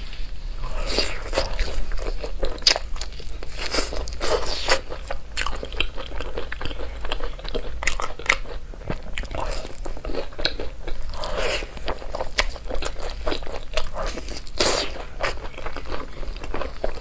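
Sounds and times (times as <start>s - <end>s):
crunchy chewing: 0.6s - 17.0s.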